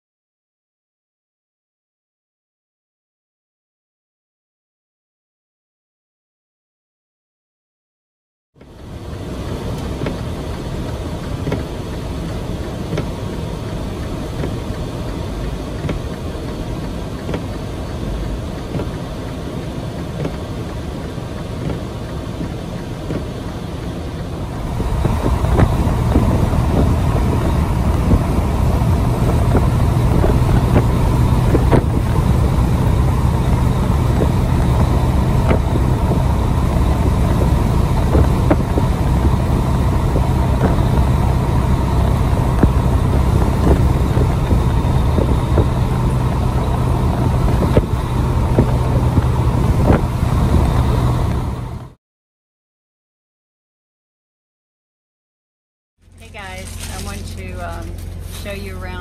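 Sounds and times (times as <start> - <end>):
truck engine and road noise: 8.6 - 52.0, 56.0 - 59.0.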